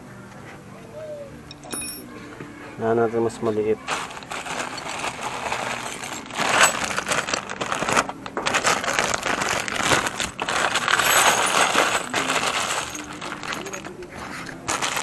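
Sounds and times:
small metal parts clinking: 0:01.5 - 0:02.1, 0:03.9 - 0:15.0
paper crinkling: 0:03.8 - 0:15.0
plastic bag crinkling: 0:03.8 - 0:15.0.

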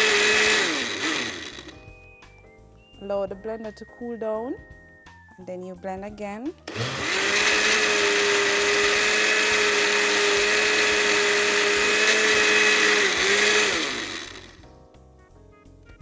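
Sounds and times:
blender motor running: 0:00.0 - 0:01.8, 0:06.7 - 0:14.6.

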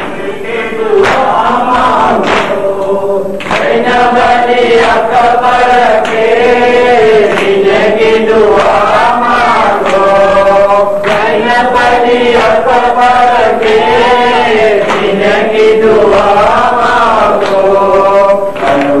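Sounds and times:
men chanting a lament: 0:00.0 - 0:19.0
hands beating chests: 0:01.0 - 0:01.5, 0:02.1 - 0:02.6.

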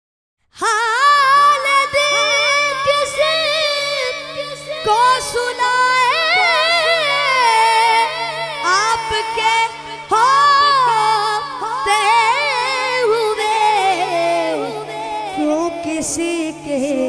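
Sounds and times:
boy singing into a microphone: 0:00.6 - 0:17.0.

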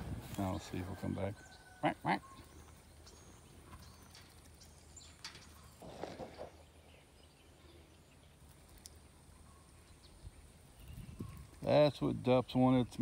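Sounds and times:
faint bird chirps: 0:00.9 - 0:11.8.

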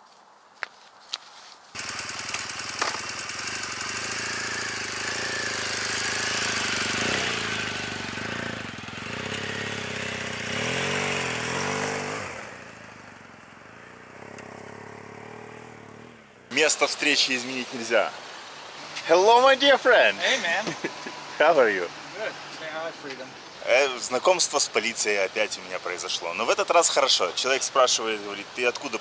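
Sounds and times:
motorcycle engine revving: 0:01.8 - 0:24.0.

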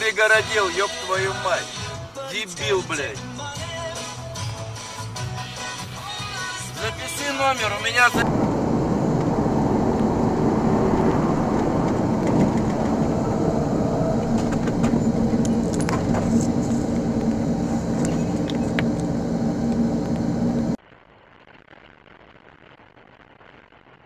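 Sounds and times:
vehicle road and engine noise: 0:08.2 - 0:20.8.

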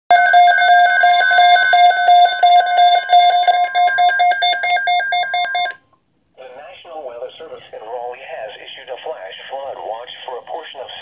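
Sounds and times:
rapid electronic alert beeping: 0:00.1 - 0:05.8.

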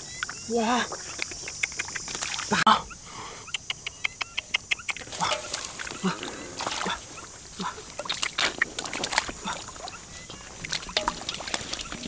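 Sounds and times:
muddy water splashing: 0:00.3 - 0:02.7, 0:04.8 - 0:12.0.

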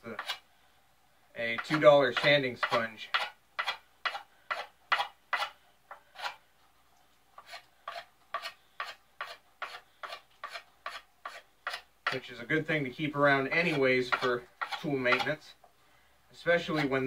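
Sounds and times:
scraping wooden axe handle: 0:00.0 - 0:00.5, 0:01.5 - 0:06.5, 0:07.4 - 0:12.4, 0:13.1 - 0:15.5, 0:16.4 - 0:17.0.

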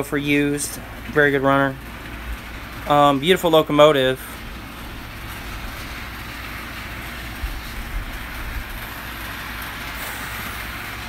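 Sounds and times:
model train whirring on track: 0:00.0 - 0:11.0.

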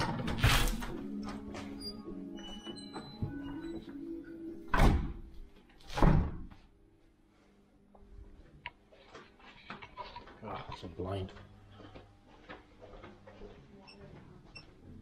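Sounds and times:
heavy door thuds: 0:04.7 - 0:05.3, 0:06.0 - 0:06.5.

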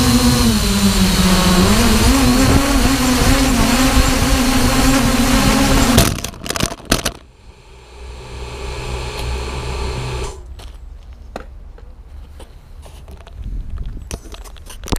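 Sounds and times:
motors humming at low speed: 0:00.0 - 0:06.2, 0:07.2 - 0:10.6
quadcopter flying: 0:00.0 - 0:06.3, 0:07.3 - 0:10.5
quadcopter crashing and clattering: 0:00.0 - 0:07.3.

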